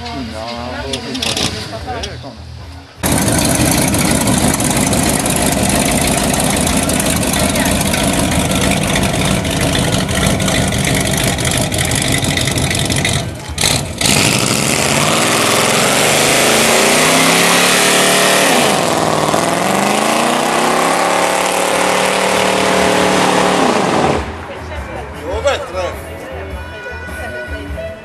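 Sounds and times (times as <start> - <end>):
car engine revving: 3.0 - 24.5.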